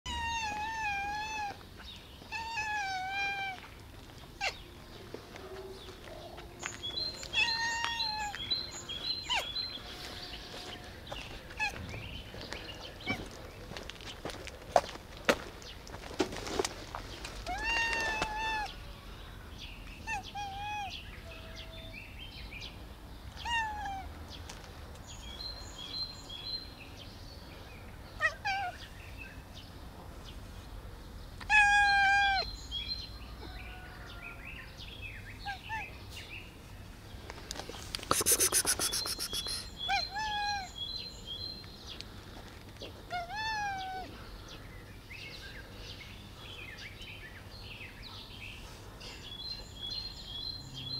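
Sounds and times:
cat meowing: 0:00.1 - 0:01.6, 0:07.3 - 0:08.3.

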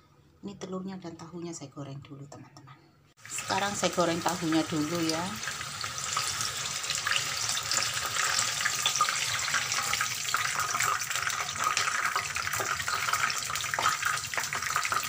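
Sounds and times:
tofu sizzling in hot oil: 0:03.2 - 0:15.0.

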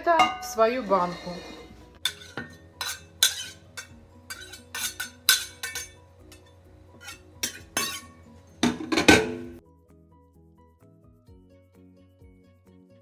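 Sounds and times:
quiet background music: 0:00.0 - 0:13.0
garlic scraped into glass jar: 0:01.0 - 0:03.7.

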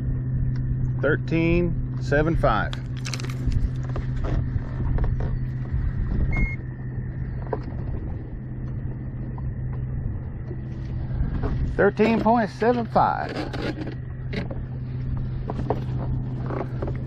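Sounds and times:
boat motor humming: 0:00.0 - 0:17.0
wind rumble on microphone: 0:00.0 - 0:17.0
short electronic beep: 0:06.3 - 0:06.6.

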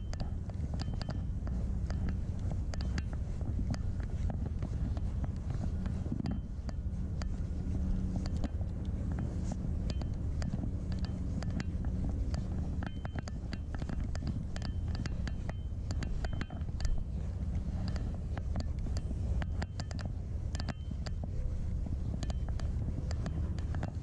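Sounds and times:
wind rumbling on microphone: 0:00.0 - 0:24.0.

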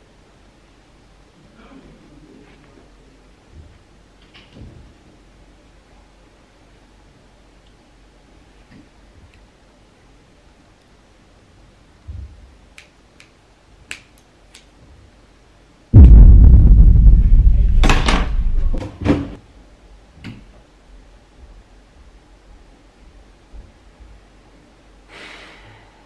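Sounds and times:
rumbling and rustling at microphone: 0:16.0 - 0:18.8
sharp knocks: 0:17.2 - 0:18.8.

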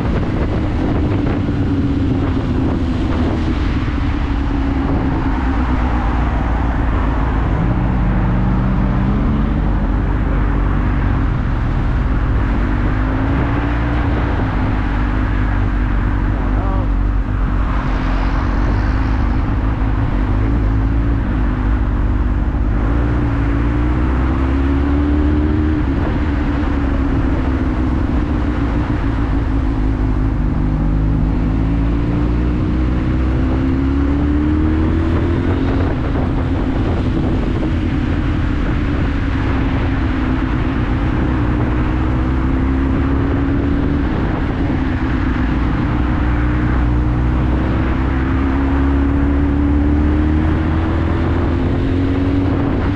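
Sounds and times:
motorcycle engine revving: 0:00.0 - 0:52.9
wind and road noise: 0:00.0 - 0:52.9.

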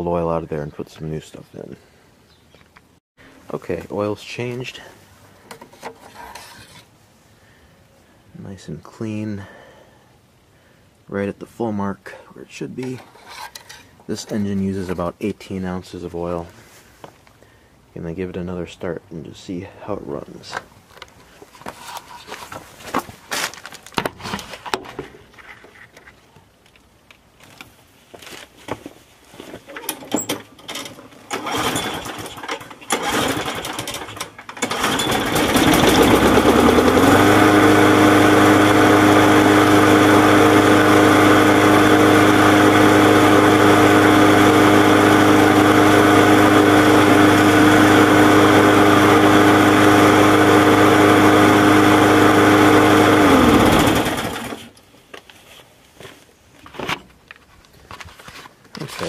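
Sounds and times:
lawn mower engine running: 0:29.9 - 0:54.8.

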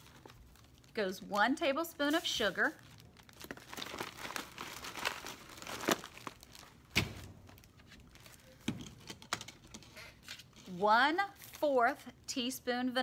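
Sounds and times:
plastic bag crinkling: 0:00.0 - 0:09.7.

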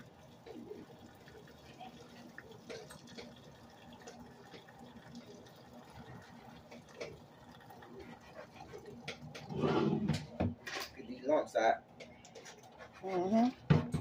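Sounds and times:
water dripping and trickling: 0:00.0 - 0:09.6.

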